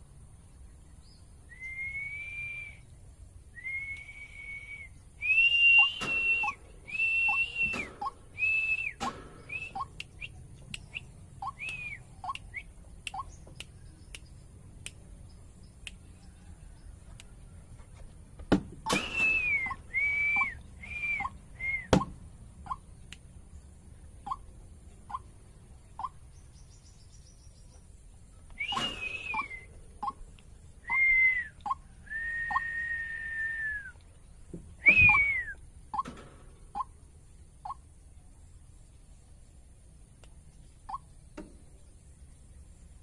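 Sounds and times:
bird whistled calls: 1.5 - 2.9, 3.5 - 13.4, 18.9 - 22.1, 28.5 - 30.2, 30.8 - 34.0, 34.8 - 35.6
short lower bird notes: 18.9 - 23.1.

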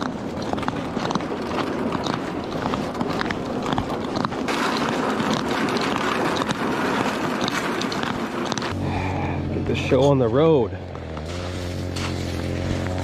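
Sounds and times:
plastic sled scraping on ice: 0.0 - 8.8, 11.0 - 13.0
footsteps on ice: 10.9 - 13.0.

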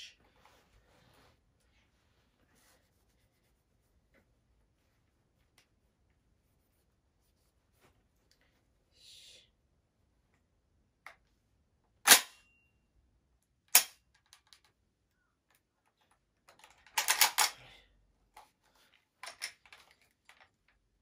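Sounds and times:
clicks and rattles: 15.5 - 17.6, 19.2 - 20.8.

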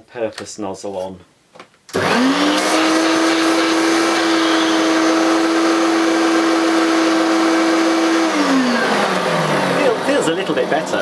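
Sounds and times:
vacuum cleaner motor whining: 1.9 - 11.0.

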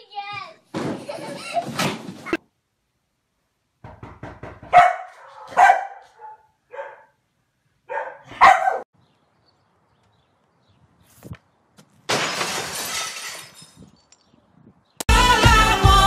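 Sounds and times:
dog barking: 4.7 - 7.2, 7.9 - 8.9.

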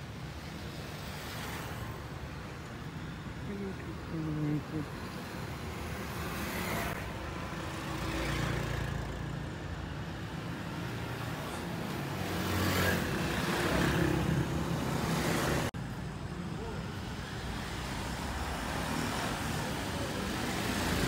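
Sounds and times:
motorcycles driving past: 6.2 - 9.5, 10.7 - 15.7.

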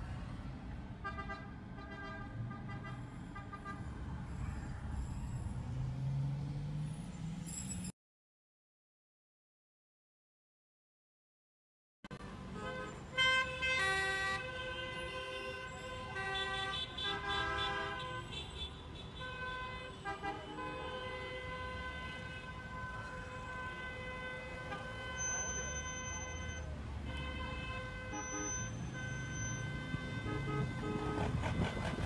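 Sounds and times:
street traffic: 0.0 - 8.0, 12.1 - 32.0
car horns: 1.0 - 4.0, 12.5 - 32.0
car alarms: 28.2 - 29.9.

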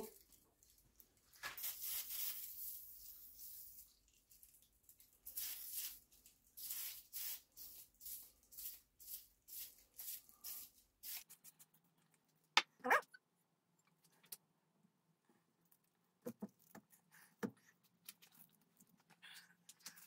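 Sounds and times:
aerosol spray hissing bursts: 6.6 - 8.8.

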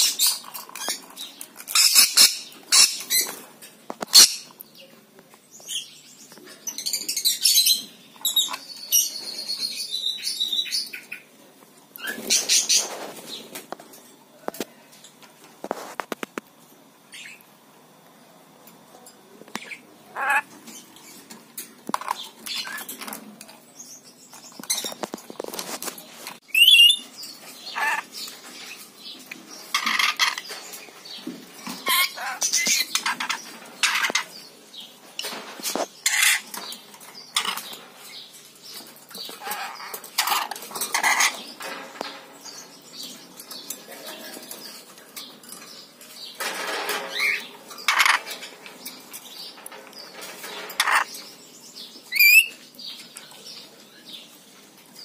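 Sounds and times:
bird squeaking: 20.2 - 20.5.

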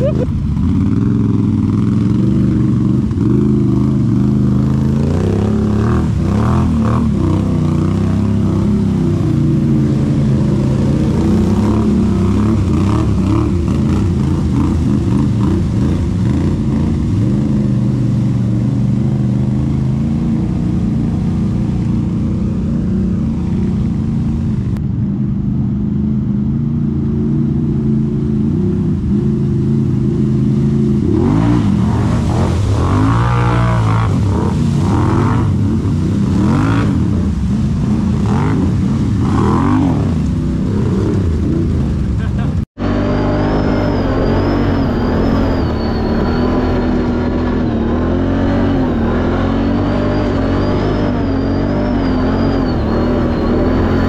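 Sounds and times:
vehicle engine droning: 0.0 - 54.0.

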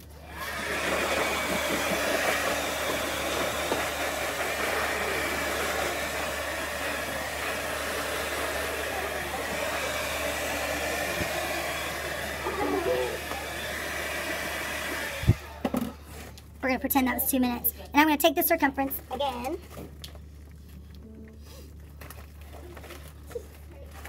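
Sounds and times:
hair dryer running: 0.0 - 15.9.

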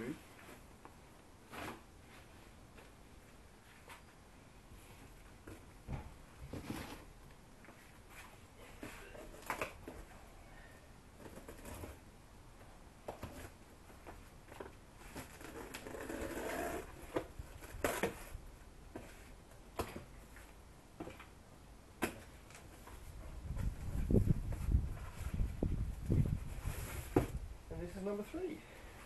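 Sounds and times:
boxes scraping on pavement: 15.0 - 18.3, 26.3 - 27.4.

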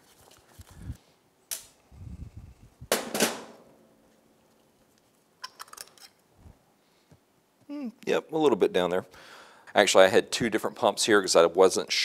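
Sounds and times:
plastic and metal parts clacking: 5.4 - 6.2.

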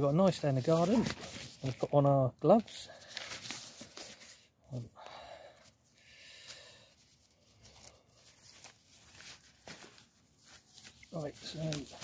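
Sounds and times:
rustling and crinkling handling: 0.0 - 4.9, 5.6 - 12.0.

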